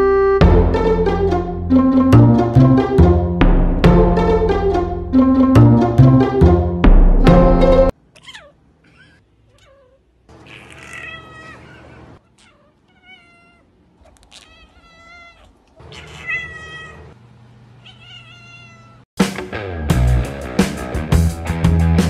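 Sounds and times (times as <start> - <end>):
cat meowing: 8.1 - 17.2, 17.8 - 19.0.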